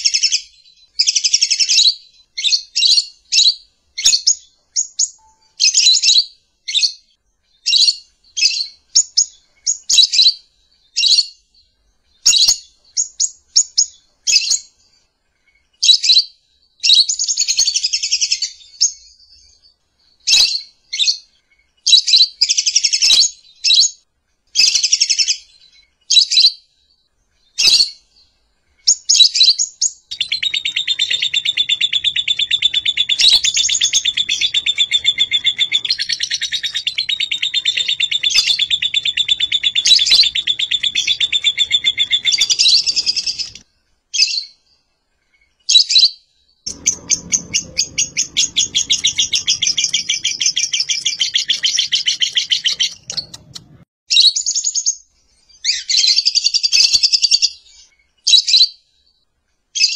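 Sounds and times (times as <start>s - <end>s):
bird chirping and chattering: 28.9s - 43.6s, 46.7s - 53.8s.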